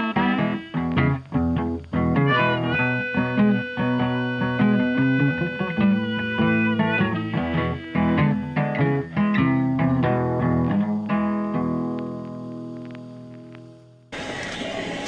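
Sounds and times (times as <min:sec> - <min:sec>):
plucked guitar music: 0:00.0 - 0:14.0.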